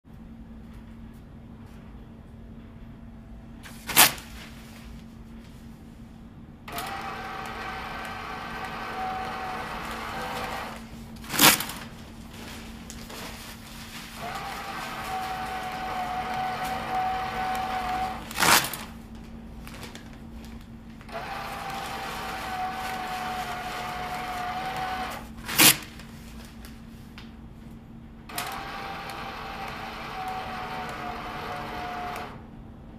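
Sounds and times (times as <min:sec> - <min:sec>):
dispensing motor whining: 0:06.7 - 0:10.9, 0:14.2 - 0:18.4, 0:21.1 - 0:25.3, 0:28.3 - 0:32.4
paper towel dispenser click: 0:06.7 - 0:11.9, 0:14.2 - 0:18.9, 0:21.0 - 0:26.0, 0:28.3 - 0:32.4.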